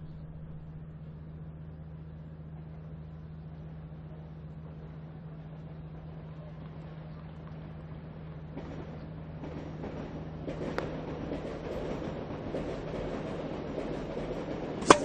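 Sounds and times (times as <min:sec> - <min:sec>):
tennis broadcast background noise: 0:00.0 - 0:11.4
steady low hum: 0:00.0 - 0:15.0.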